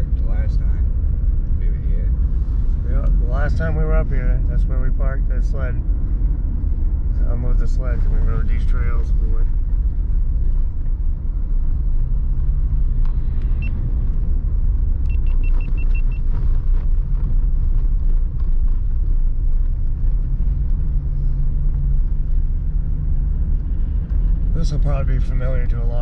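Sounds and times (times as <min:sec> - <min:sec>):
truck engine and tyres rumbling: 0:00.0 - 0:26.0
high beeps: 0:15.1 - 0:16.2.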